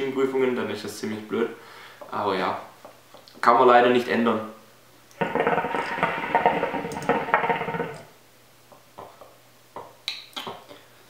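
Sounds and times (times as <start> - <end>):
hookah water bubbling: 5.2 - 8.1.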